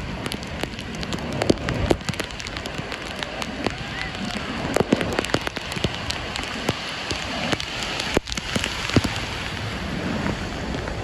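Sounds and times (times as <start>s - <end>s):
sharp ticks and pops: 0.0s - 9.5s
ocean surf breaking: 0.0s - 11.0s.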